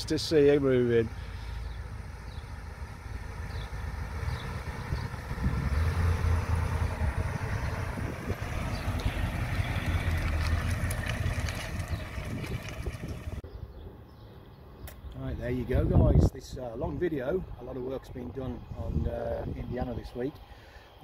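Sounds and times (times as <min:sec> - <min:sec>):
motorhome engine driving past: 0:00.0 - 0:13.4.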